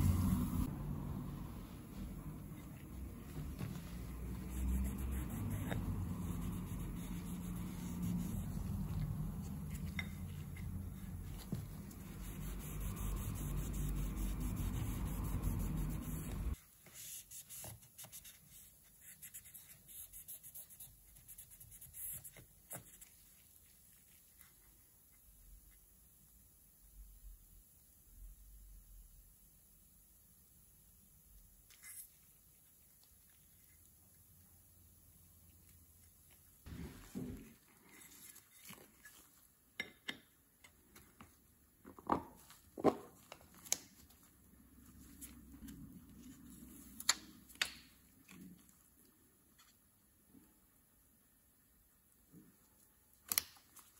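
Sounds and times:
cloth rubbing on metal: 1.6s - 17.4s.

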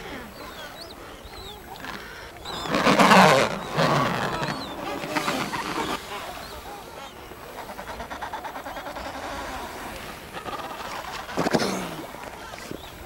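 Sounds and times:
seal honking call: 1.6s - 12.1s.

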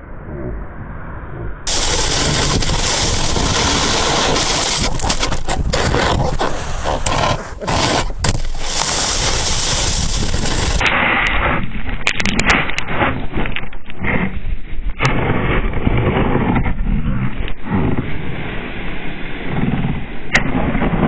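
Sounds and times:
wind on microphone: 0.0s - 21.0s
snow spraying on camera: 1.7s - 10.8s
snowboard scraping over snow: 1.7s - 11.8s, 14.0s - 21.0s.

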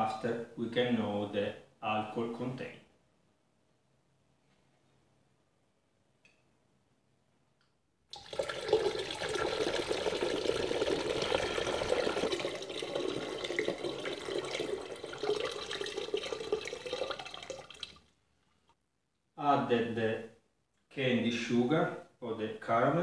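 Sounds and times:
liquid pouring into plastic bottle: 8.1s - 18.2s.

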